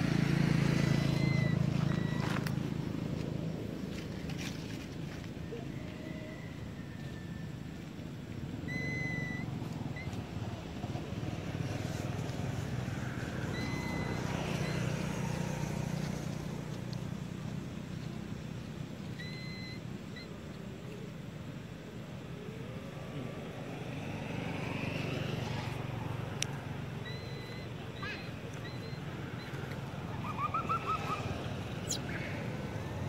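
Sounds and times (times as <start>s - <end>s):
distant engine drone: 0.0s - 33.0s
high whistle-like calls: 0.8s - 2.5s, 5.4s - 7.8s, 8.6s - 10.4s, 13.0s - 15.9s, 19.1s - 20.5s, 27.0s - 32.9s.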